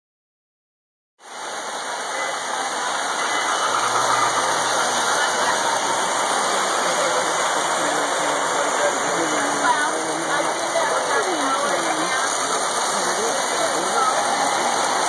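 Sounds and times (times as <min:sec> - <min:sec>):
model trains whirring on track: 0:01.2 - 0:15.0.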